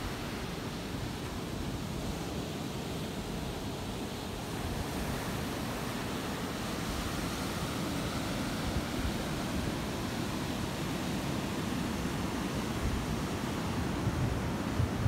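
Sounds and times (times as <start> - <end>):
wind rumbling on microphone: 12.0 - 15.0.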